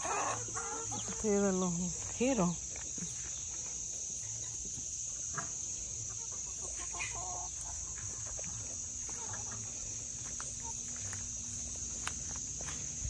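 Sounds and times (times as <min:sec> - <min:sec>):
chickens clucking softly: 0:00.0 - 0:01.4, 0:04.0 - 0:11.0.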